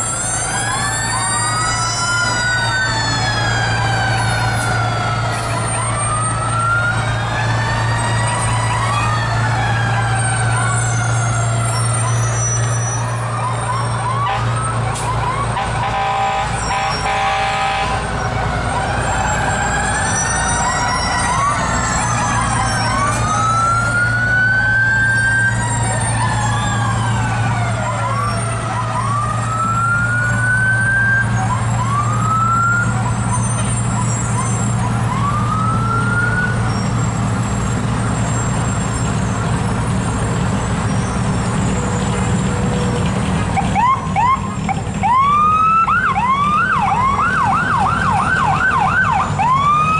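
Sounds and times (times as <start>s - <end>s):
fire truck sirens wailing: 0.0s - 49.9s
truck engines running: 0.0s - 49.9s
horn blast: 15.6s - 18.1s.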